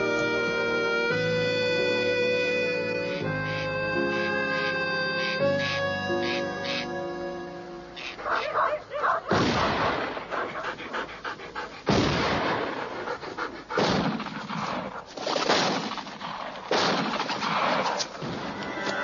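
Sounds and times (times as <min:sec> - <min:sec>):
dog: 0:08.1 - 0:09.4, 0:10.1 - 0:15.2
echoing gunshots: 0:09.3 - 0:10.7, 0:11.9 - 0:13.1, 0:13.8 - 0:18.5.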